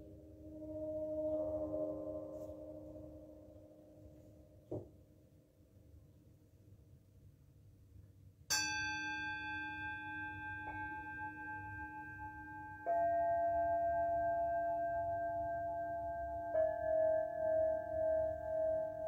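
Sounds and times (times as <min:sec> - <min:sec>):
metal singing bowl ringing: 0:08.5 - 0:19.0.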